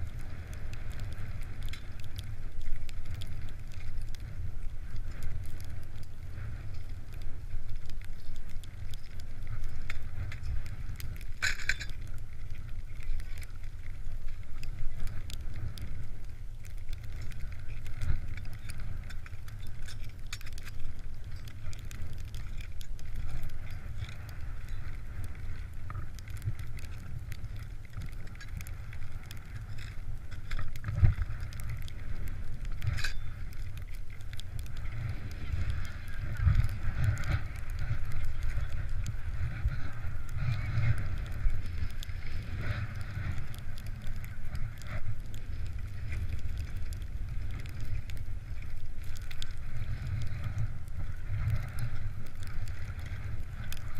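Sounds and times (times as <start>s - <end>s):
wind buffeting microphone: 13.5s - 53.9s.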